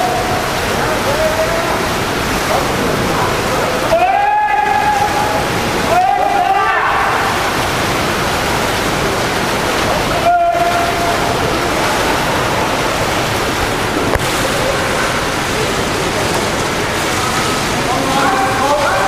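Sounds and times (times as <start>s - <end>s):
water splashing and churning: 0.0s - 19.0s.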